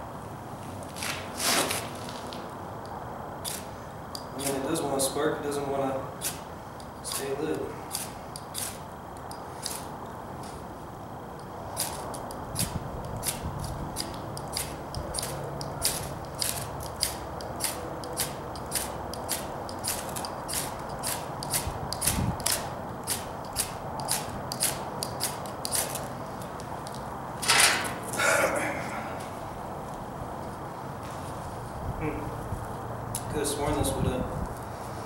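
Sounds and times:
knife scraping ferro rod: 3.4s - 3.7s, 7.9s - 8.8s, 9.6s - 10.6s, 11.8s - 26.1s.

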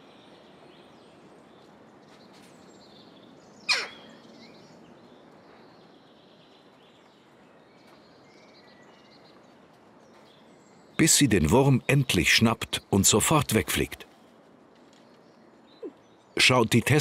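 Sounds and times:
faint small birds chirping: 0.0s - 17.0s
outdoor background noise: 0.0s - 17.0s
harsh jackdaw call: 3.7s - 4.1s.

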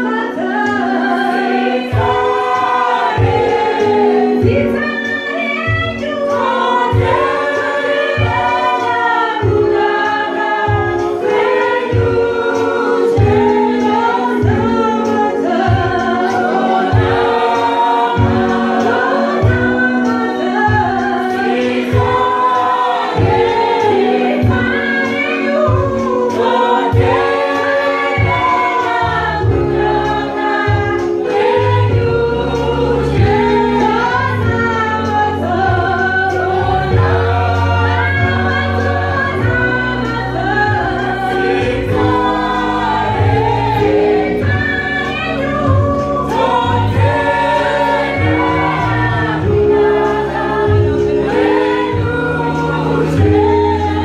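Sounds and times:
vocal group singing in harmony: 0.0s - 54.0s
steady beat: 1.2s - 34.6s, 45.6s - 54.0s.

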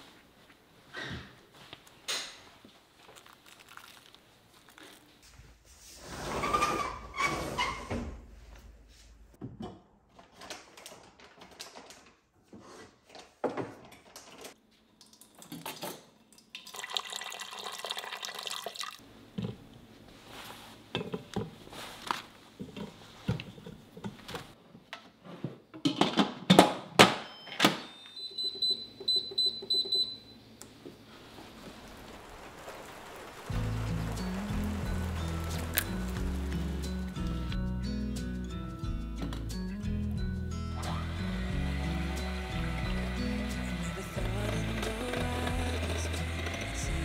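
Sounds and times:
running water: 31.3s - 37.3s.

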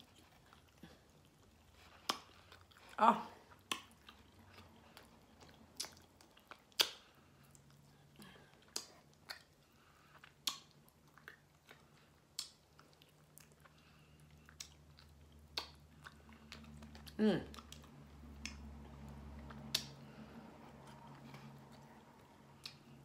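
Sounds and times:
person chewing: 0.0s - 23.0s
wet lip smacks: 3.5s - 4.3s, 5.0s - 7.8s, 8.6s - 23.0s.

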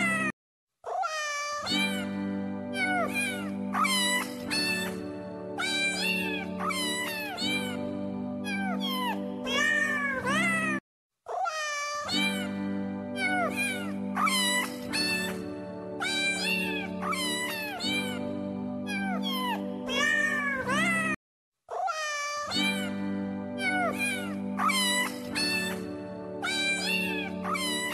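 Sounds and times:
cat meowing: 0.9s - 2.1s, 2.8s - 5.0s, 5.6s - 7.8s, 8.4s - 12.5s, 13.2s - 15.4s, 16.0s - 18.2s, 18.9s - 23.0s, 23.6s - 25.8s, 26.4s - 27.9s
background music: 1.7s - 10.8s, 12.2s - 21.2s, 22.6s - 27.9s.

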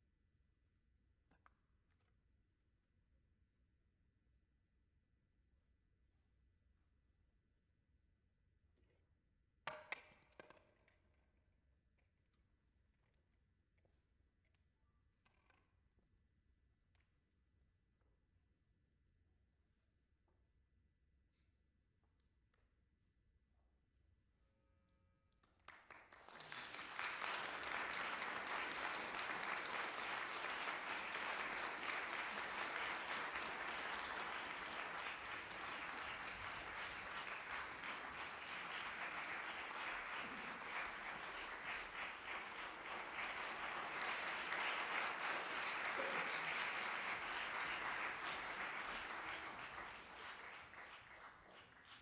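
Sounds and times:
audience applauding: 25.7s - 52.0s.

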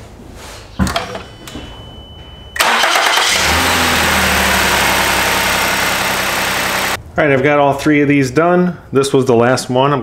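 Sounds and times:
car engine starting and idling: 2.6s - 7.0s.

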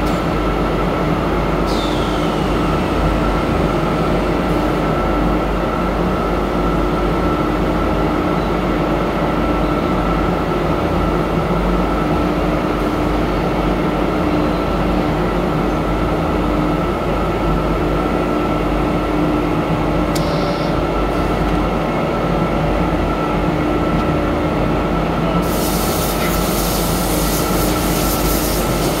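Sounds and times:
machinery hum: 0.0s - 29.0s
loud hiss: 25.4s - 29.0s.

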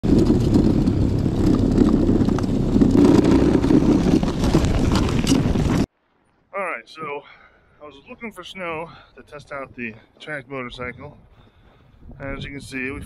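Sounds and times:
tracked snow bike rumbling: 0.0s - 5.9s
wind on microphone: 0.0s - 5.9s, 10.7s - 13.0s.

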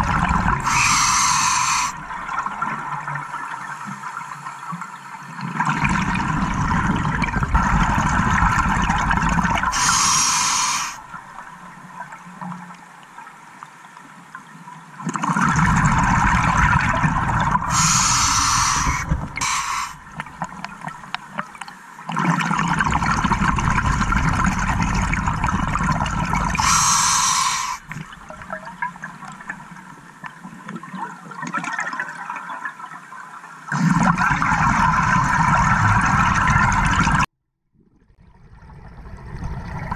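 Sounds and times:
exhaled bubbles gurgling underwater: 0.0s - 12.6s, 15.0s - 33.0s, 33.6s - 39.9s
regulator hiss: 0.6s - 2.0s, 9.7s - 11.0s, 17.7s - 20.0s, 26.6s - 27.9s.

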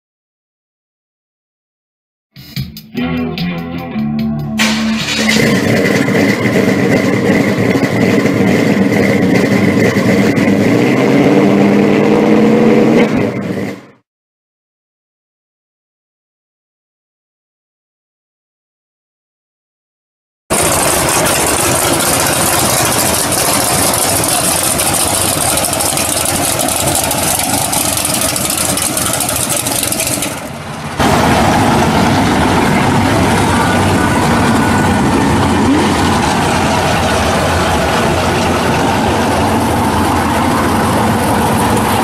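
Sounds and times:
car engine idling loudly: 4.6s - 13.9s, 20.5s - 42.0s.

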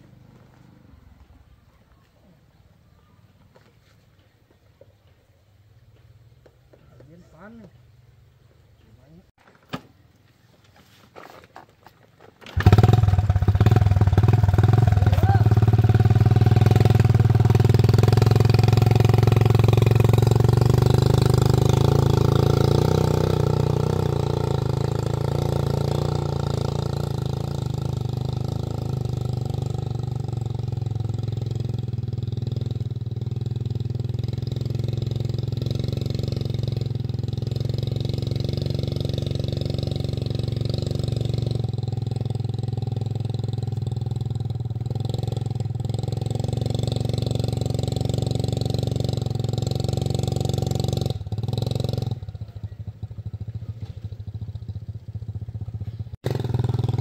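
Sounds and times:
motorcycle engine idling: 12.4s - 57.0s.

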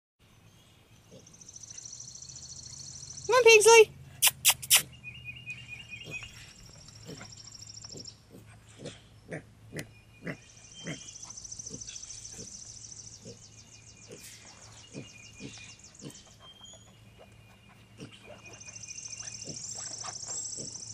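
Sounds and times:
piglet grunting: 7.9s - 11.1s.

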